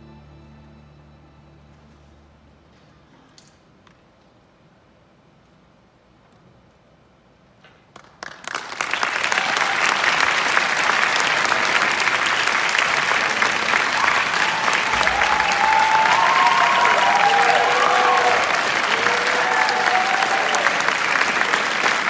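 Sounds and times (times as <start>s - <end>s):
audience applause: 7.9s - 22.0s.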